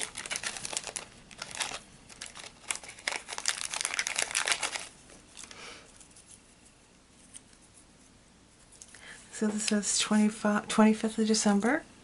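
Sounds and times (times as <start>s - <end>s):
plastic packet crinkling: 0.0s - 6.4s.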